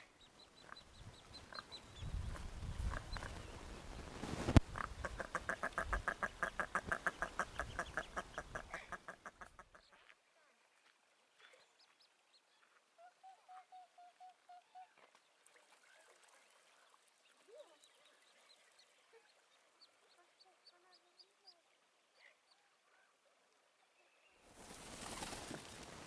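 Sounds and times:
duck calling: 4.7 - 10.1.

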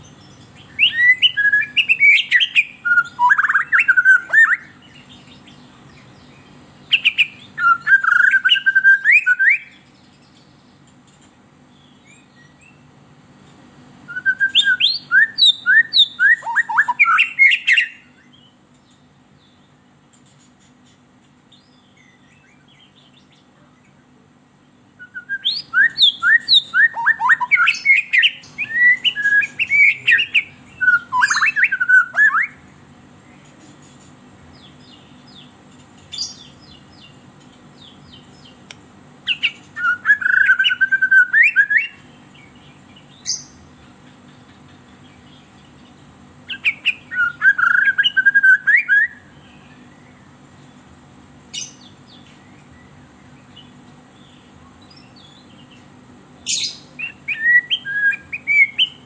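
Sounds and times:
low steady hum: 0.0 - 59.0
bird singing whistled phrases: 0.6 - 5.1, 6.9 - 9.9, 14.0 - 18.5, 25.0 - 32.6, 39.3 - 42.1, 46.5 - 50.2, 56.4 - 59.0.

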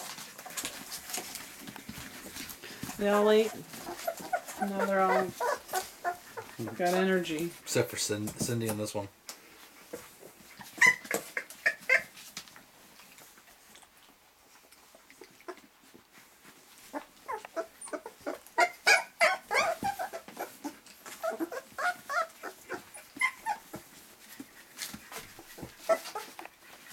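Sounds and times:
puppies crying and whimpering: 0.0 - 7.2, 10.4 - 12.2, 16.8 - 26.5.

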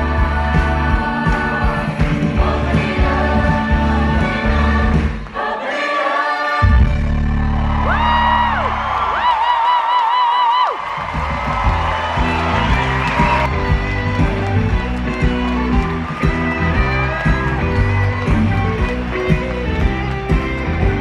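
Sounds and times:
live band accompaniment: 0.0 - 5.4, 10.8 - 21.0.

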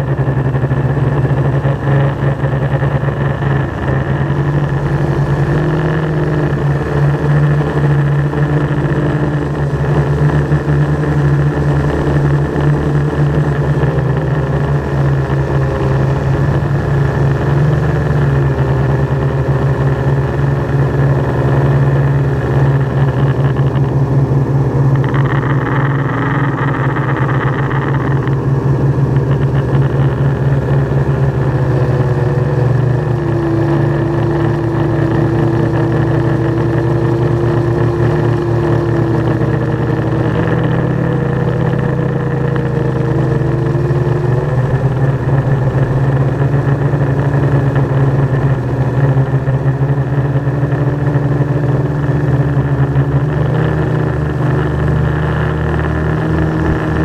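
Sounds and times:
drone propellers buzzing: 0.0 - 57.0.

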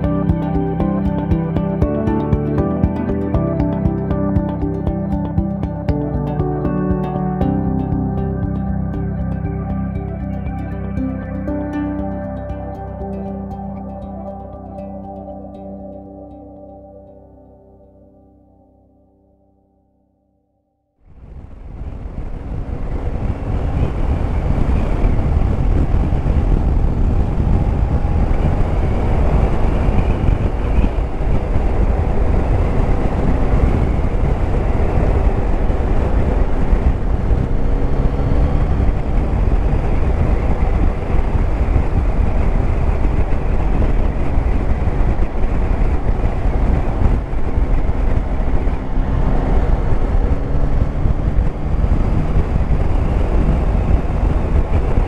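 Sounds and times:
wind rumble on microphone: 21.1 - 55.0
motorcycle engine running: 21.6 - 55.0.

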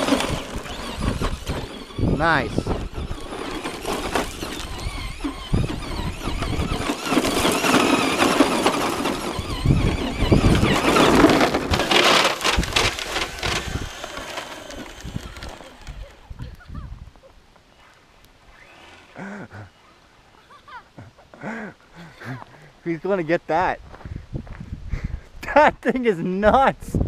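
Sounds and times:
tyres crunching gravel: 0.0 - 16.2
electric motor whining: 0.0 - 16.4, 18.4 - 19.2.

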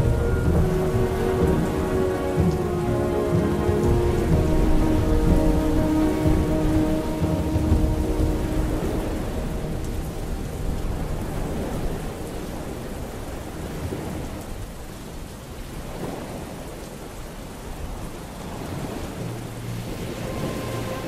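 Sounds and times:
low musical tones: 0.0 - 13.8, 18.5 - 21.0
rolling thunder rumble: 0.0 - 14.8
steady rain: 0.0 - 21.0.

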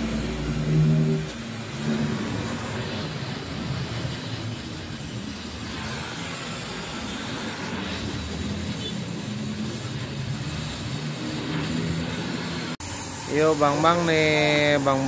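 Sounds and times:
low motor-like hum: 0.0 - 3.0
welding torch flame hissing: 0.0 - 15.0.

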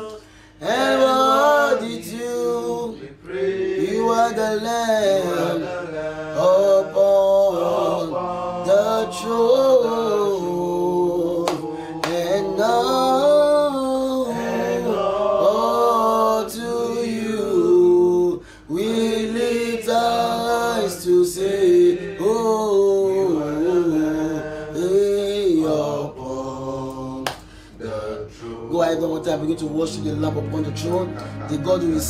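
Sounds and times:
man singing a slow worship song: 0.0 - 18.9, 19.6 - 32.0.

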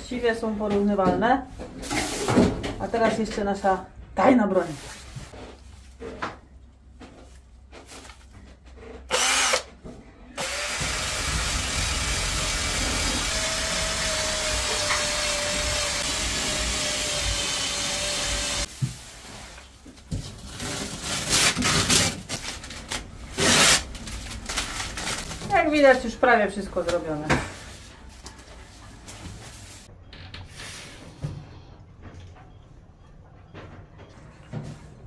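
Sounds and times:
handheld power tool running: 9.1 - 9.7, 10.4 - 18.7.

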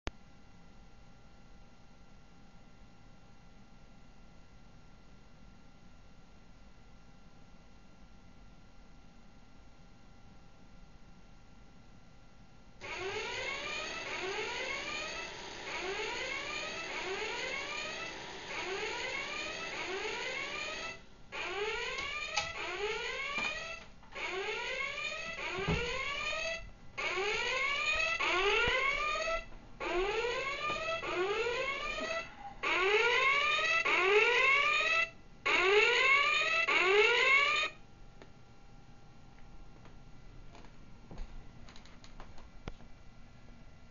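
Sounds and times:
electronic alarm rising chirps: 12.8 - 37.8
thump: 25.6 - 26.0.

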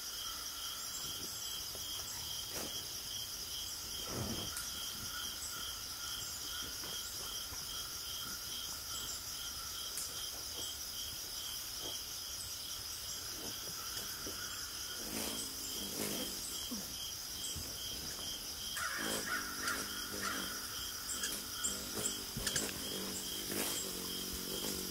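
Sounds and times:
insects chirping: 0.0 - 24.9
crow cawing: 18.8 - 20.8.

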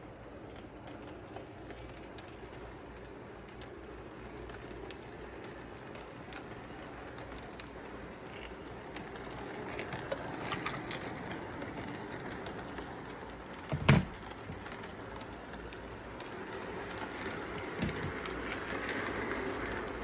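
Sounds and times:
model train whirring rumble: 0.0 - 20.0.

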